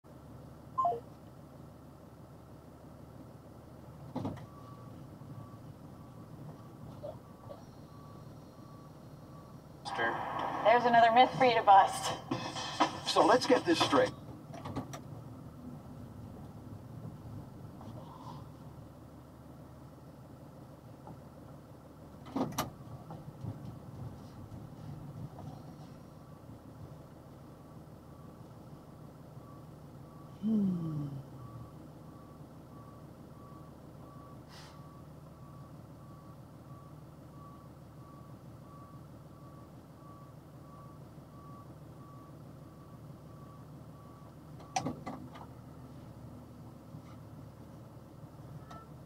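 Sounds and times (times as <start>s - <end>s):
truck engine idling: 0.1s - 49.0s
reversing alarm beeping: 0.8s - 1.0s, 4.4s - 10.0s, 29.4s - 44.8s
clunks: 4.0s - 4.8s.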